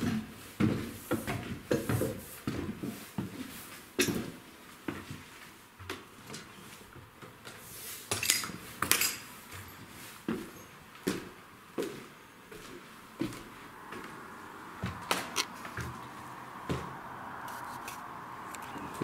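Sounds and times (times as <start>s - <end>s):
footsteps on wooden stairs: 0.0s - 7.6s, 9.5s - 17.6s
debris clinking underfoot: 8.1s - 9.9s.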